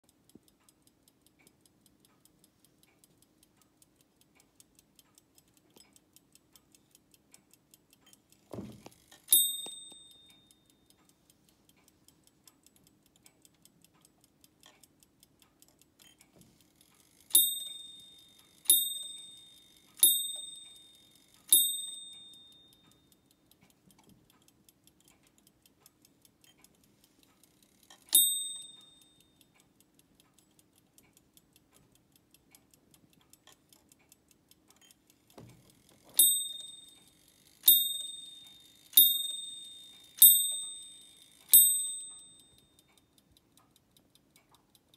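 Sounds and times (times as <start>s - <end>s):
clock ticking: 0.0s - 44.9s
low thud: 8.5s - 8.8s.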